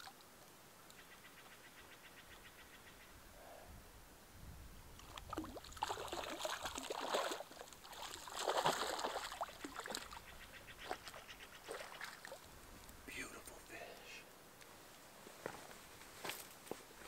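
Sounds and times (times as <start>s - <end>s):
fish splashing in water: 5.0s - 12.5s.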